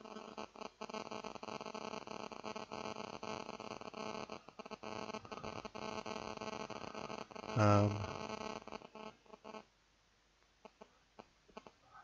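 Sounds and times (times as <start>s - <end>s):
electrical hum: 0.0s - 9.6s
static hiss: 0.0s - 12.0s
faint irregular clicks: 10.4s - 11.8s.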